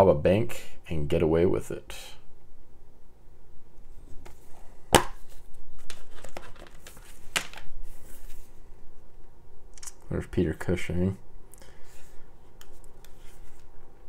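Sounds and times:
rustling plastic and paper: 0:05.3 - 0:08.6.

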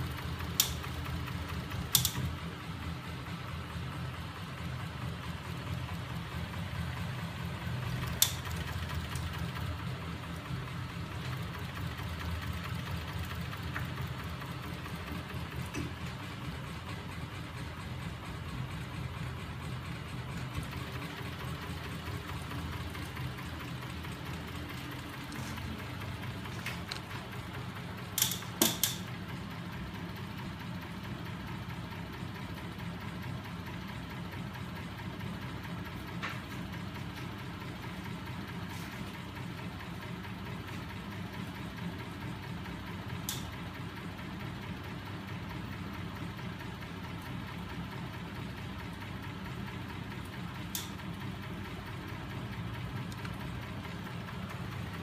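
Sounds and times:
electric motors humming and rattling: 0:00.0 - 0:55.0
sharp mechanical clicks: 0:00.2 - 0:02.4, 0:07.9 - 0:09.5, 0:28.1 - 0:29.2.

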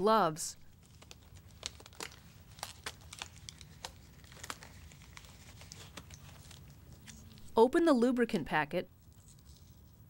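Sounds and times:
gloves crinkling and snapping: 0:00.6 - 0:07.6, 0:08.9 - 0:10.0.

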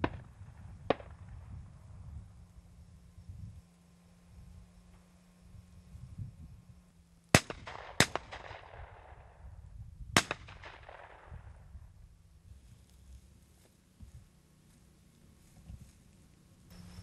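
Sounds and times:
shotgun shots with echo: 0:00.0 - 0:01.3, 0:07.3 - 0:09.4, 0:10.2 - 0:11.6.

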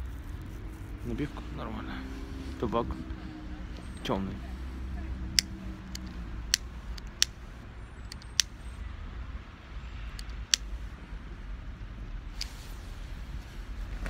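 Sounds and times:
low steady rumble: 0:00.0 - 0:14.0
cigarette lighter clicking: 0:05.4 - 0:07.4, 0:08.1 - 0:08.5, 0:10.2 - 0:10.7.

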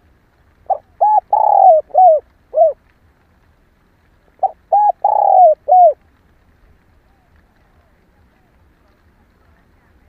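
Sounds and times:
dove cooing: 0:00.7 - 0:02.8, 0:04.4 - 0:06.0.

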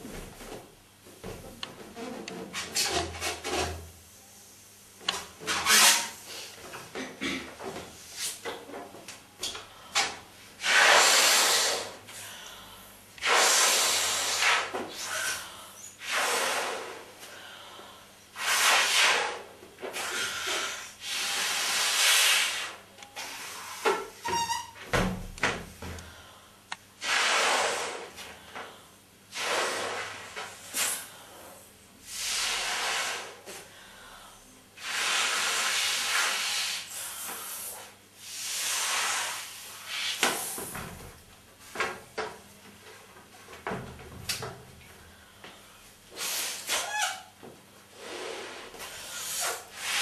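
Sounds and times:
breaths blowing into balloon: 0:10.6 - 0:12.0, 0:13.2 - 0:17.1, 0:20.0 - 0:24.6, 0:27.0 - 0:28.2, 0:29.3 - 0:33.5, 0:34.8 - 0:40.7, 0:46.1 - 0:47.2, 0:47.9 - 0:50.0.

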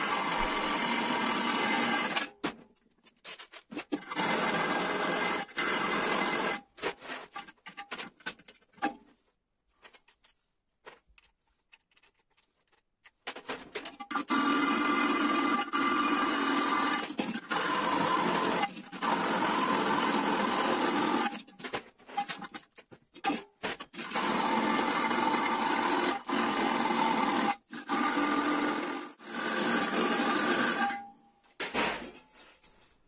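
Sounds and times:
cordless drill boring through metal: 0:00.0 - 0:02.4, 0:03.9 - 0:06.7, 0:14.0 - 0:21.5, 0:23.2 - 0:31.1.

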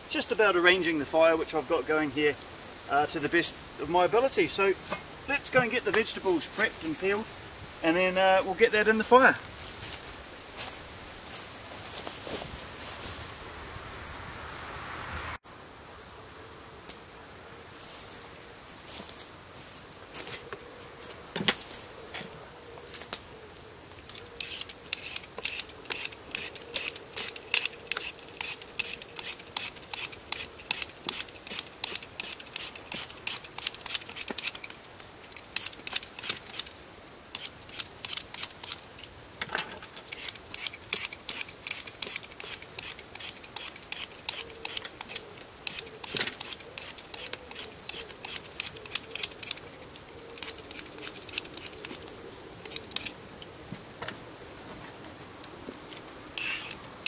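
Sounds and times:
peeler scraping potato: 0:24.4 - 0:34.6, 0:40.1 - 0:49.6, 0:50.3 - 0:52.1, 0:56.4 - 0:56.8.

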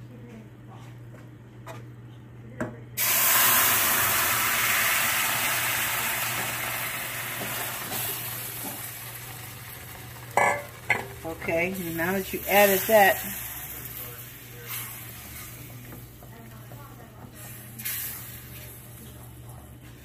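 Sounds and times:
vegetables sizzling in a hot pan: 0:03.0 - 0:16.2.

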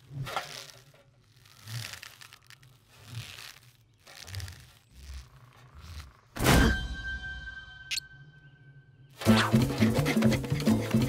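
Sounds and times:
rustling sounds: 0:00.0 - 0:06.3
soft cartoon creaking: 0:00.0 - 0:06.4.

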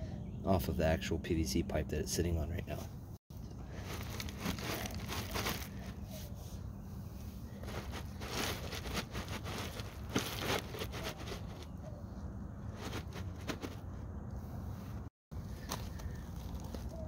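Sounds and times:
gravel crunching and shifting: 0:02.2 - 0:17.0
plastic box scraping on gravel: 0:03.7 - 0:05.8, 0:07.5 - 0:11.8, 0:12.6 - 0:14.0.

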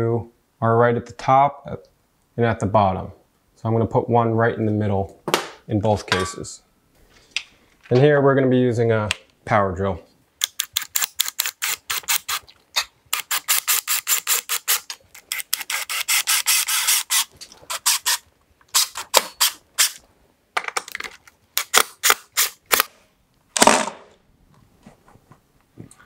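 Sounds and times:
cordless drill driving screws: 0:15.3 - 0:18.2.

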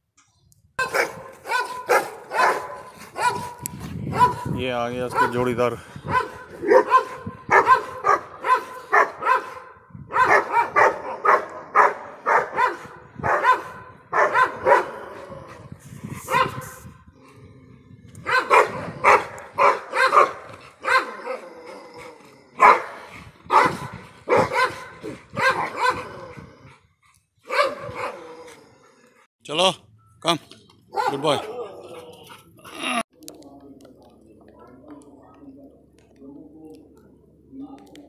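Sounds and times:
dogs barking: 0:00.8 - 0:05.5, 0:06.1 - 0:15.5, 0:16.3 - 0:16.8, 0:18.2 - 0:26.4, 0:27.4 - 0:28.5, 0:30.9 - 0:32.4.

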